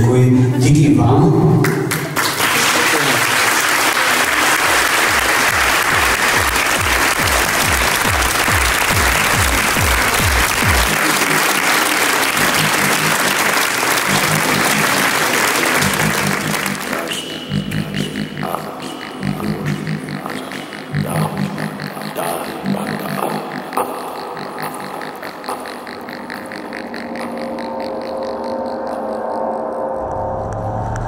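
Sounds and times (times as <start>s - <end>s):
audience applauding: 1.6s - 18.1s
music with low pulsing beat: 5.2s - 11.5s, 15.8s - 31.0s.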